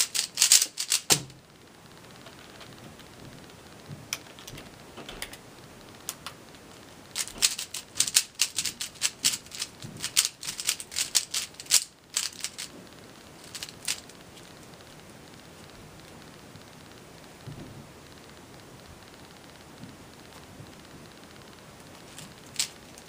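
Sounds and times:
puzzle cube clicking: 0.0 - 1.2, 7.1 - 12.7, 13.4 - 14.2, 22.1 - 23.0.

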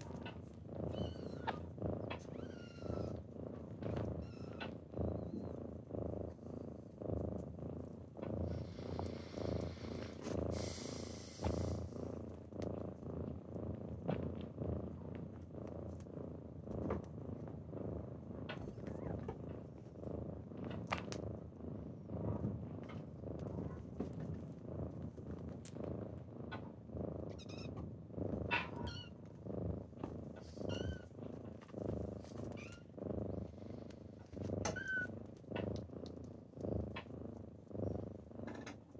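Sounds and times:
kitten purring: 0.0 - 38.9
kitten hissing: 8.6 - 11.9.

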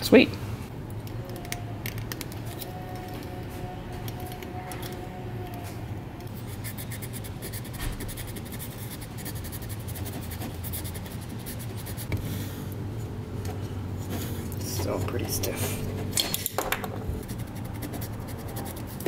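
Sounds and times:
steady low hum: 0.0 - 19.0
metal scratching on metal: 1.4 - 8.4.

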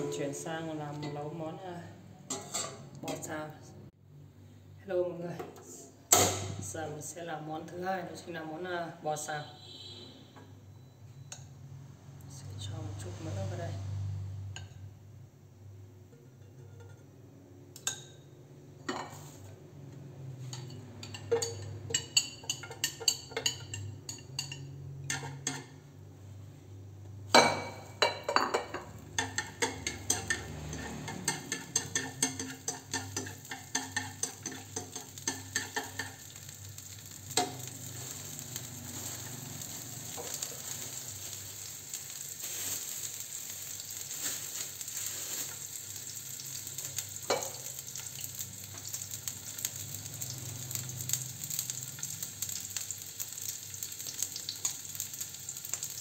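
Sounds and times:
spatula tapping and scraping pan: 20.5 - 25.8, 28.0 - 36.4
garlic sizzling in oil: 28.3 - 56.0.

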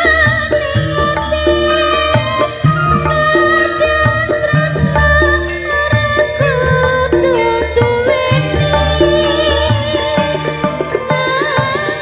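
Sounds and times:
drum beat: 0.8 - 5.4
sustained melodic line: 1.0 - 5.9.

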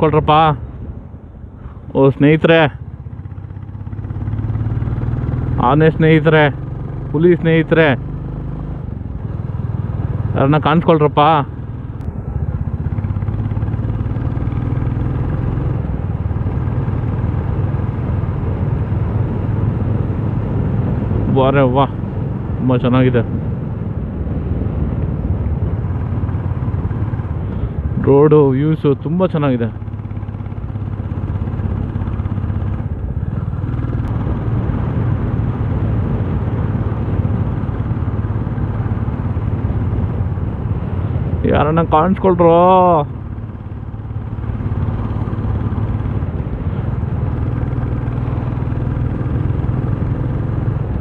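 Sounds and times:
motorcycle engine running: 0.0 - 51.0
wind and road rush: 0.0 - 51.0.

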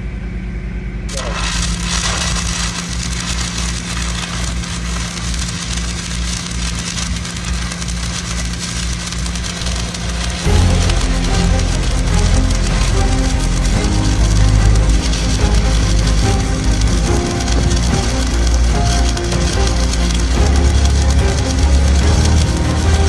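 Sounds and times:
welding arc crackling hiss: 1.1 - 23.0
music: 9.4 - 23.0.

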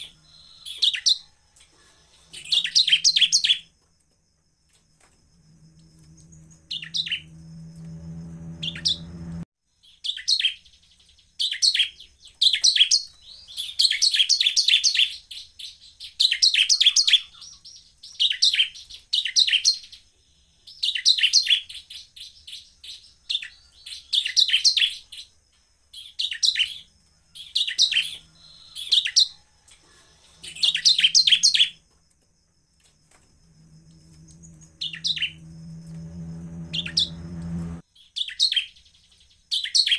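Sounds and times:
bird chipping song: 0.0 - 1.3, 1.9 - 3.7, 5.8 - 7.5, 8.6 - 31.8, 33.8 - 39.9
low hum: 5.1 - 9.5, 33.1 - 37.8.

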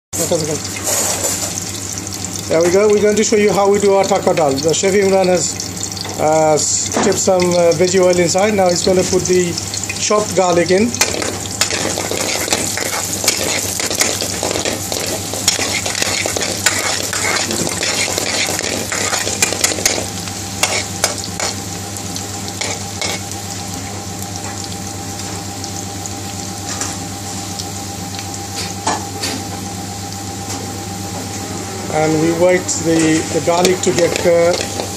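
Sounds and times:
garlic sizzling in hot oil: 0.2 - 31.1, 31.9 - 34.9
metal spoon scraping pan: 11.0 - 21.6.

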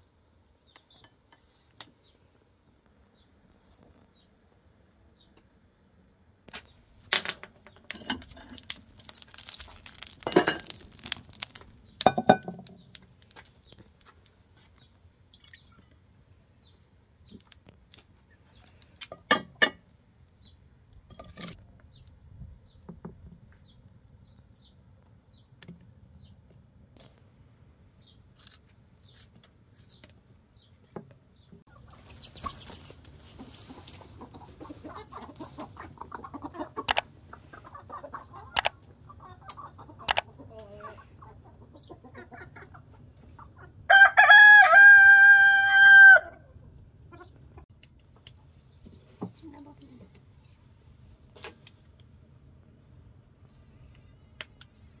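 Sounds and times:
clinks of dishes and utensils: 7.1 - 8.7, 10.2 - 10.8, 12.0 - 12.7.

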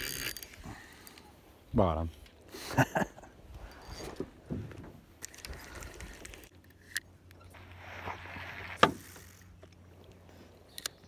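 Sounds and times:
fishing reel clicks: 0.0 - 0.6.

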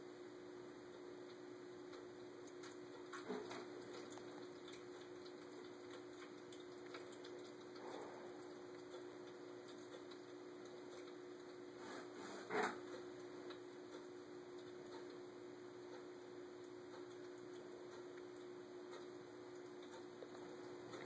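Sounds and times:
pump humming: 0.0 - 21.0
water trickling: 2.2 - 11.8
cat lapping water: 2.3 - 21.0.

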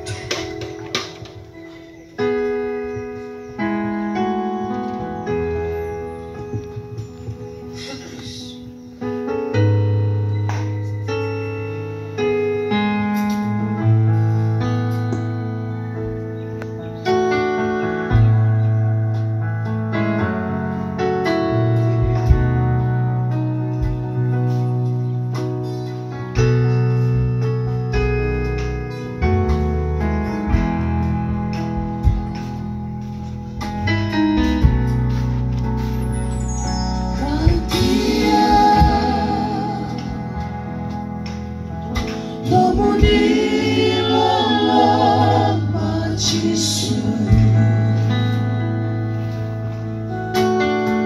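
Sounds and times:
electronic keyboard chords: 0.0 - 51.0
live band music over loudspeakers: 0.0 - 51.0
guitar chords: 26.2 - 51.0.

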